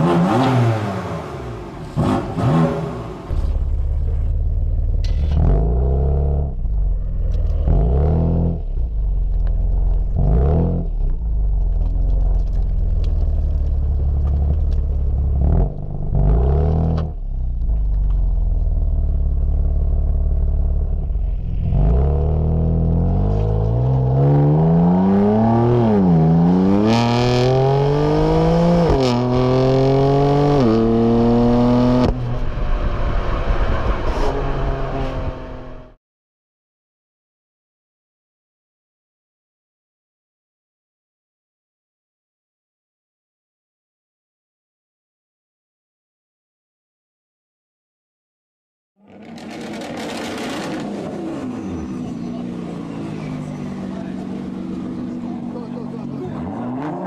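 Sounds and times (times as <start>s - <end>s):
car engine revving and accelerating: 0.0s - 9.0s, 9.7s - 11.2s, 14.2s - 17.2s, 18.4s - 36.0s, 49.1s - 57.0s.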